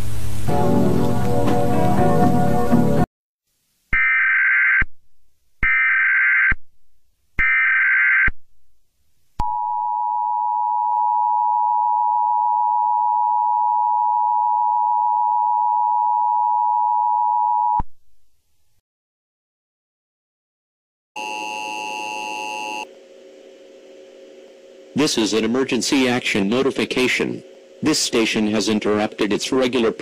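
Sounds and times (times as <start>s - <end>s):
two-tone attention signal: 21.2s - 22.9s.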